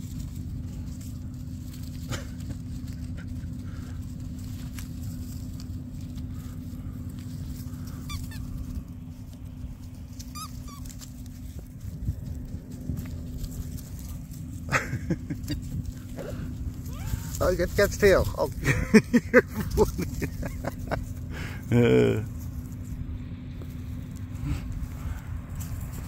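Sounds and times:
steady low rumble: 0.0 - 26.0
puppies yipping: 4.8 - 12.4.

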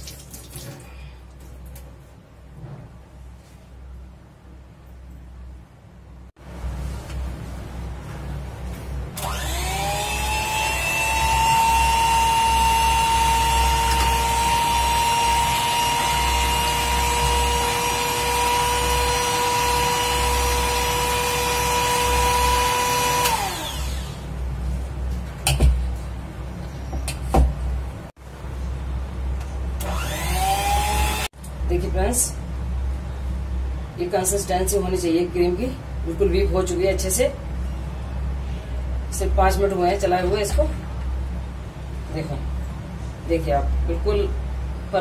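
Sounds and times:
electric hand mixer whirring: 9.2 - 24.3, 29.8 - 31.3.

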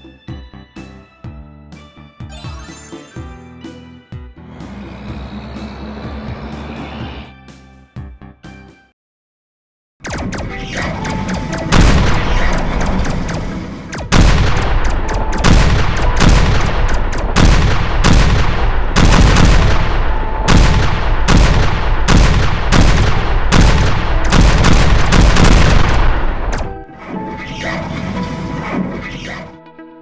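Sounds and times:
gunfire: 10.0 - 26.8
explosion booms: 11.7 - 13.0, 14.1 - 26.6.

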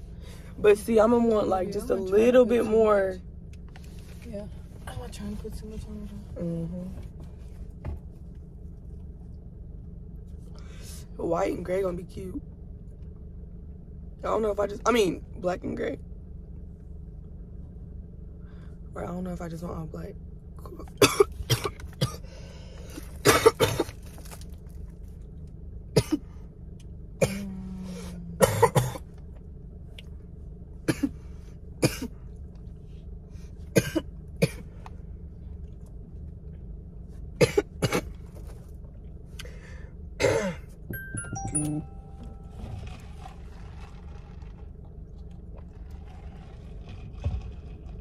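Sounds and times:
person coughing: 21.0 - 22.2, 23.2 - 24.0, 26.0 - 26.3, 27.2 - 27.5, 28.4 - 29.0, 31.8 - 32.1, 33.8 - 34.6, 37.4 - 38.1, 40.2 - 40.7
quiet music: 40.9 - 43.4.

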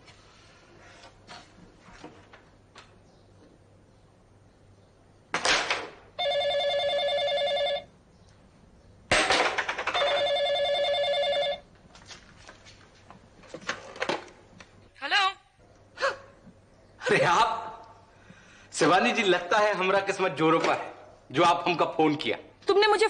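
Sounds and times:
desk telephone ringing: 6.2 - 7.9, 9.9 - 11.7.

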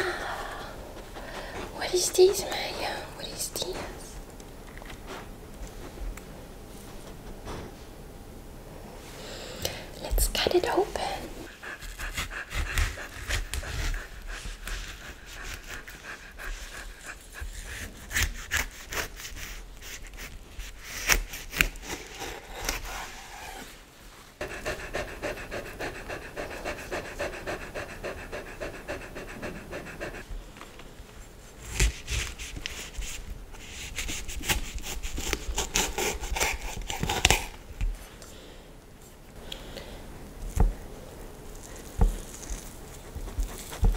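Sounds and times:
dog panting: 0.4 - 4.2, 10.2 - 20.4, 24.4 - 30.3, 41.6 - 43.9.

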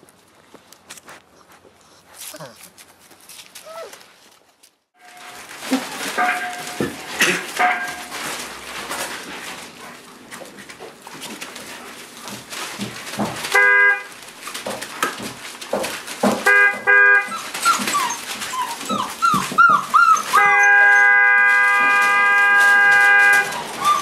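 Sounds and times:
puppy paws scrabbling: 0.0 - 24.0
rustling paper: 0.0 - 24.0
puppies yipping and whimpering: 17.2 - 21.3, 23.3 - 24.0.

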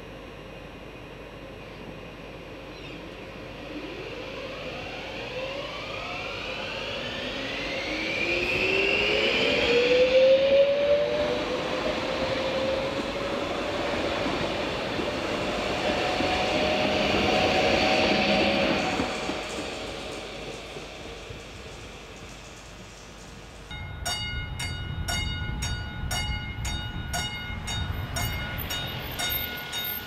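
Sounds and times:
train wheels rumbling on rails: 2.7 - 30.0
electric train motor whine rising: 3.4 - 22.8.

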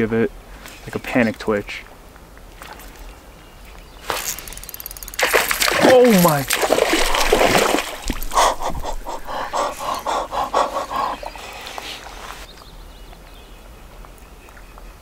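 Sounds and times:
fish splashing in water: 4.1 - 9.8.

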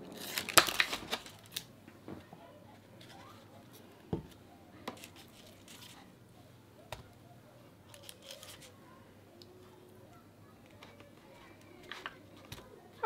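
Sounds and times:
plastic punnet crinkling: 0.0 - 1.7, 7.9 - 8.7.

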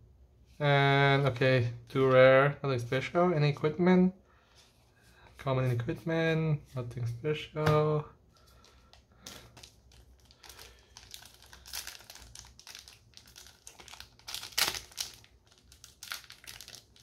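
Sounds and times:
foil wrapper crinkling: 8.5 - 17.0.

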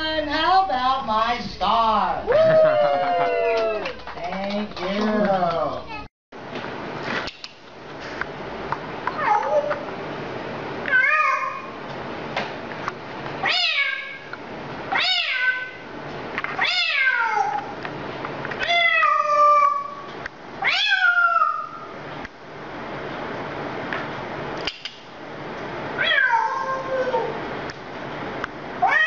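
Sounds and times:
cat meowing: 9.2 - 9.8, 10.9 - 11.7, 13.4 - 14.2, 14.9 - 15.8, 16.6 - 17.7, 18.6 - 21.8, 26.0 - 27.3.

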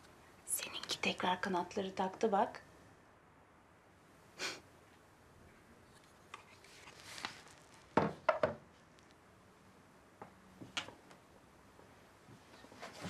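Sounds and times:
frame knocking on wooden table: 8.0 - 8.6.

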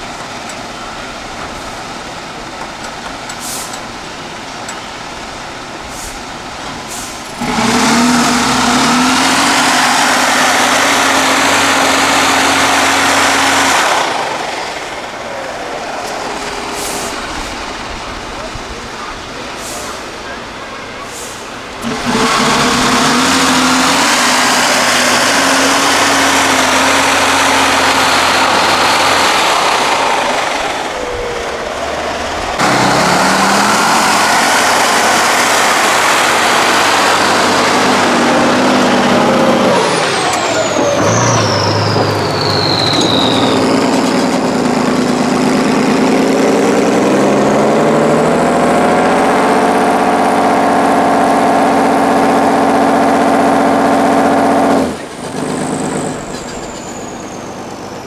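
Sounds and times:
diesel truck engines revving: 0.0 - 58.0
high whistle falling in pitch: 40.6 - 43.9.

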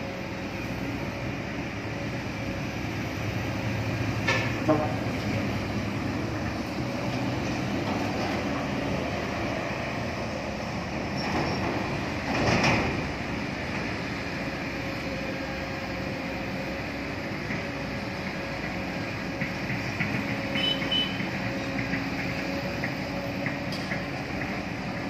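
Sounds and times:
diesel engines running: 0.0 - 25.0
roadside traffic noise: 0.0 - 25.0.

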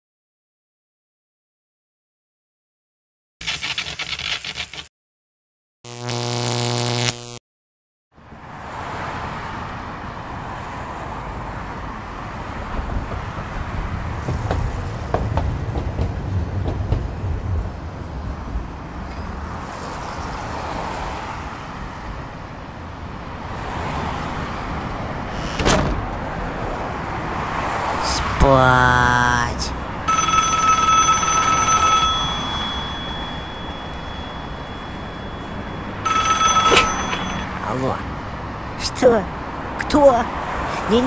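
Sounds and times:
road traffic: 8.1 - 41.0
low held tone: 32.0 - 37.6.

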